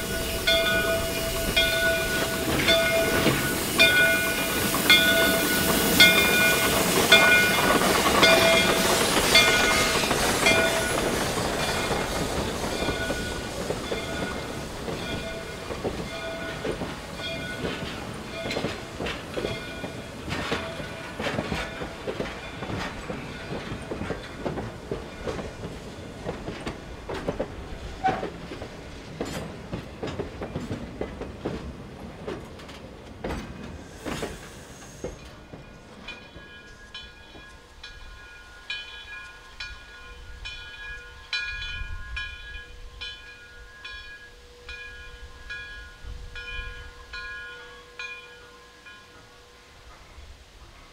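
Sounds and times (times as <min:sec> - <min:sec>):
train wheels clicking over rail joints: 0:00.0 - 0:44.2
steam locomotive hissing: 0:00.0 - 0:50.9.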